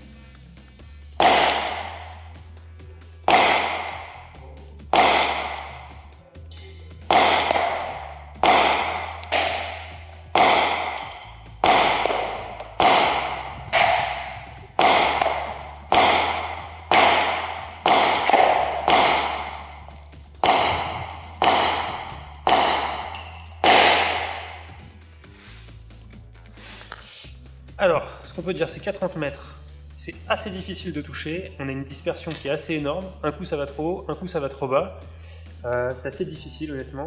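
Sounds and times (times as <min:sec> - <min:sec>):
airsoft pistol shots echoing: 0:01.2 - 0:02.3, 0:03.3 - 0:04.3, 0:05.0 - 0:06.1, 0:07.1 - 0:24.8.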